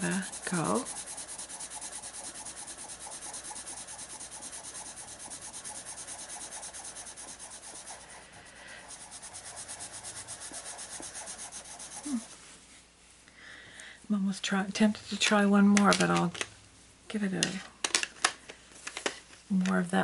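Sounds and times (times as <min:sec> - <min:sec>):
pencil scratching on paper: 0:00.0 - 0:12.4.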